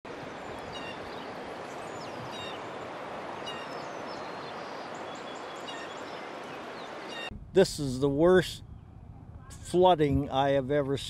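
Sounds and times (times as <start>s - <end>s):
outdoor background rush: 0.1s - 11.0s
small birds chirping: 0.2s - 7.3s.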